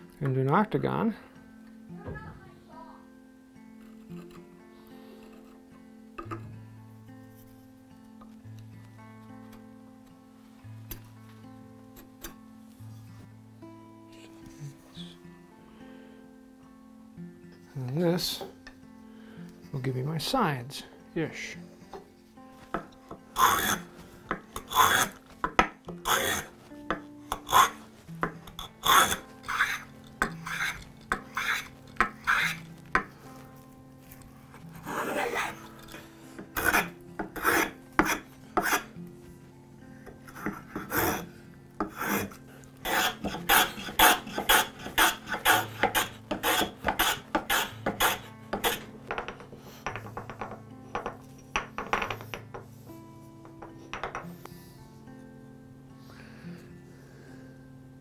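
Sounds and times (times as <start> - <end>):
hand plane scraping wood: 23.3 - 26.7, 27.3 - 32.7, 34.8 - 38.9, 40.3 - 49.0.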